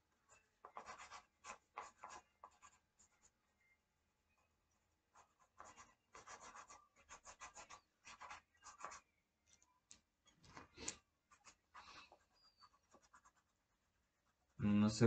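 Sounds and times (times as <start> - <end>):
pencil scratching on paper: 0.3 - 3.3, 5.1 - 9.1, 10.5 - 14.6.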